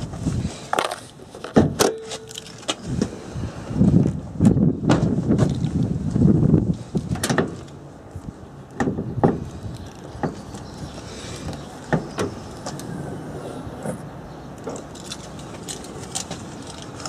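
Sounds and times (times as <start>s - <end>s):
engine lid clicks and knocks: 8.8s - 9.5s.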